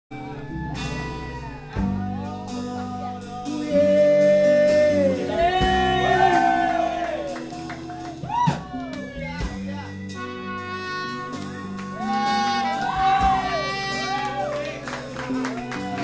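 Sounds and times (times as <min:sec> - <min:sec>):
live band jamming: 0:00.1 - 0:16.0
lead instrument bending notes: 0:09.0 - 0:16.0.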